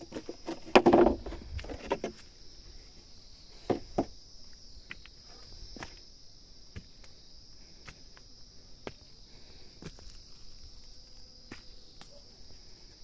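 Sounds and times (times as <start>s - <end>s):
high-pitched insect chorus: 0.0s - 13.0s
footsteps on stone and dry ground: 3.6s - 12.2s.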